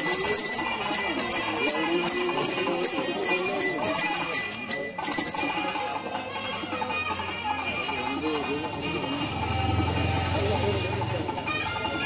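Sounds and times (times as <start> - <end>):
bell rung in quick rhythm: 0.0 - 6.3.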